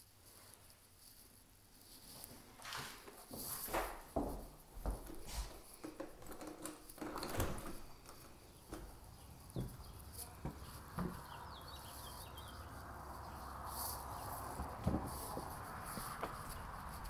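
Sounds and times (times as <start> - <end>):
irregular footsteps: 0.4 - 17.0
glass-paned door opening: 6.2 - 9.0.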